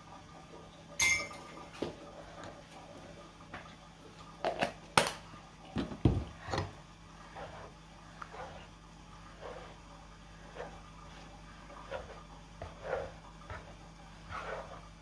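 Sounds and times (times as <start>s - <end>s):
spoon and cookware clinking: 1.0s - 1.6s.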